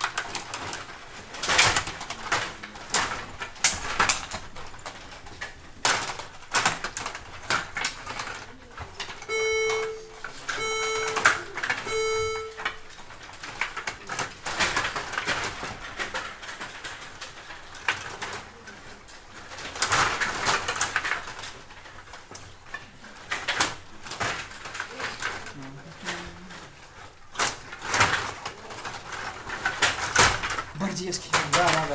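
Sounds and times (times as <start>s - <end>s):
plastic players clattering: 0.0s - 31.9s
electronic beeps: 9.3s - 12.7s.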